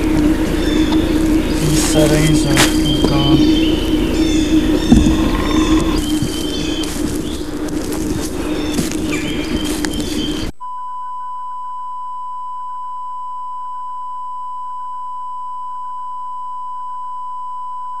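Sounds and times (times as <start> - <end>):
rustling outdoor mic noise: 0.0 - 10.6
steady line-up tone: 0.0 - 10.6.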